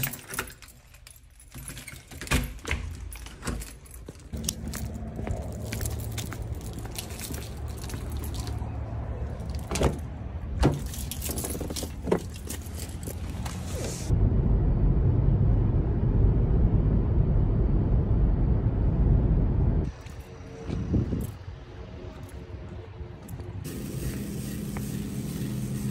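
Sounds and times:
keys jangling: 0.0 - 13.6
car driving rumble from inside: 11.5 - 19.9.

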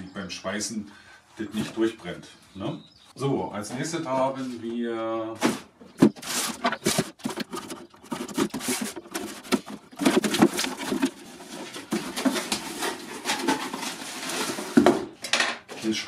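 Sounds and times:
cardboard rubbing and scraping: 5.4 - 15.0.

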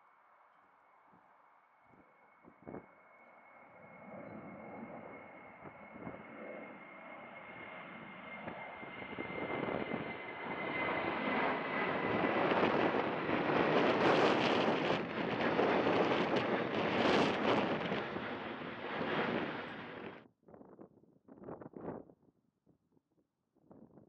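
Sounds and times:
jet engines passing overhead: 2.4 - 20.2.

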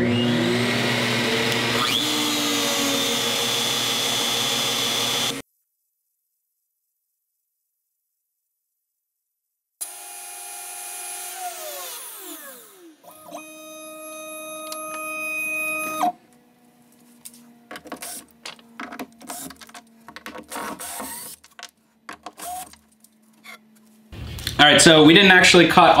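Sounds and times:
router spinning down: 0.0 - 5.4, 9.8 - 16.2, 22.4 - 22.8
steady motor hum: 0.0 - 5.4
cordless drill bursts: 0.2 - 5.4, 9.8 - 16.2, 20.5 - 21.4, 22.4 - 22.8.

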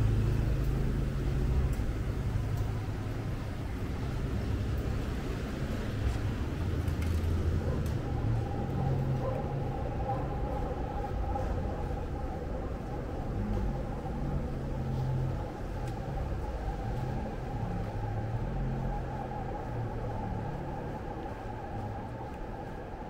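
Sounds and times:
city street traffic rumble: 0.0 - 23.0
constant hum: 0.0 - 23.0.

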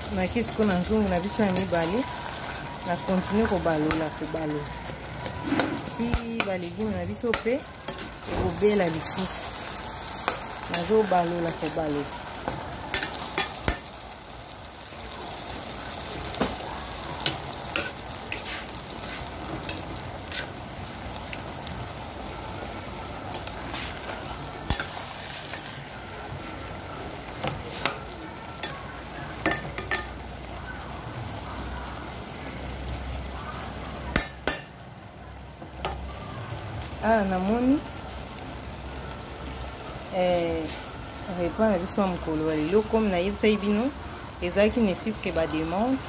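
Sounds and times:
okra sizzling in a pan: 0.0 - 46.0
spoon scraping a pan: 5.2 - 9.5, 17.2 - 20.6, 23.3 - 25.8.

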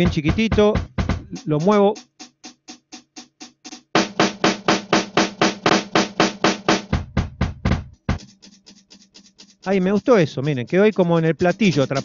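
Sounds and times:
stuttering drum hits: 0.0 - 8.3.

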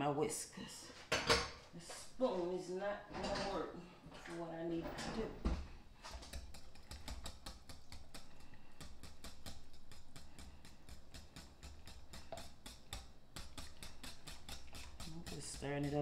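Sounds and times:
whisk ticking against glass bowl: 6.3 - 16.0.

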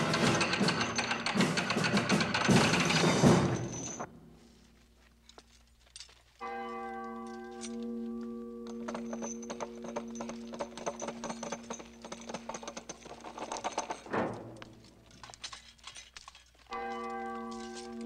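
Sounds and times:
boots and armour clattering on stone: 4.7 - 18.0
ringing bell tone: 6.4 - 14.0, 16.7 - 18.0.

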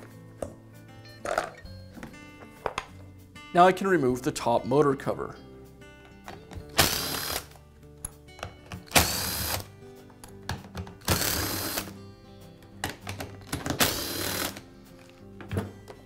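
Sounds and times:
cordless screwdriver running: 6.8 - 7.5, 8.9 - 9.6, 11.1 - 11.9, 13.8 - 14.6.

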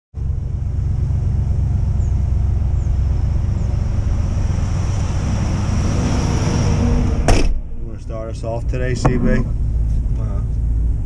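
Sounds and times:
van engine idling: 0.2 - 5.4, 7.7 - 11.0.

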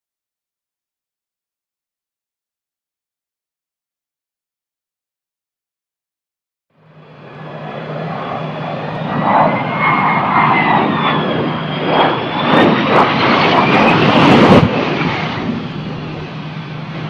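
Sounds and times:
aircraft engines roaring: 6.7 - 17.0
high whining tones: 6.8 - 17.0.

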